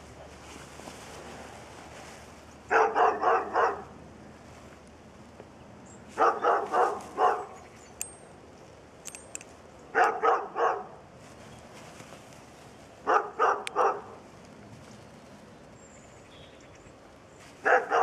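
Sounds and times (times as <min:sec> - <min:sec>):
dog barking: 0:02.7 - 0:03.9, 0:06.2 - 0:07.6, 0:09.9 - 0:11.0, 0:13.0 - 0:14.2, 0:17.6 - 0:18.0.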